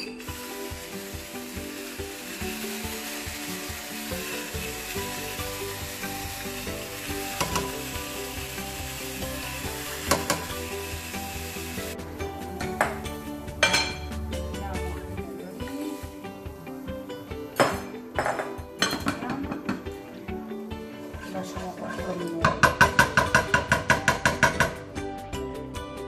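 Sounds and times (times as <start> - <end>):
soft background music: 0.0 - 26.0
sauce sizzling in a frying pan: 0.2 - 12.4, 15.2 - 17.6.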